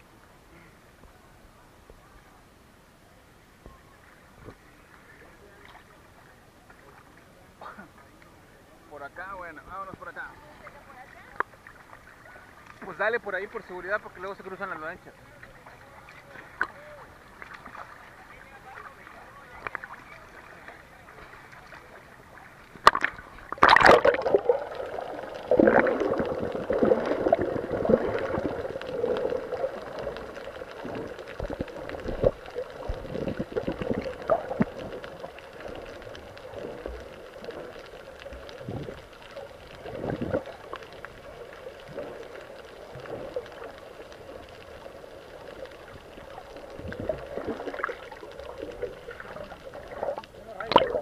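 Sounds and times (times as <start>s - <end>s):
sea water splashing and gurgling: 15.7s - 51.0s.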